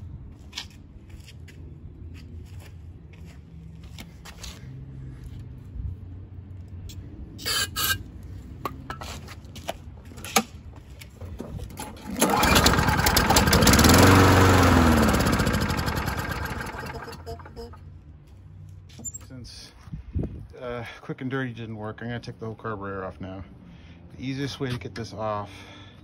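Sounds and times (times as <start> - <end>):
lawn mower engine starting: 11.2 - 17.8.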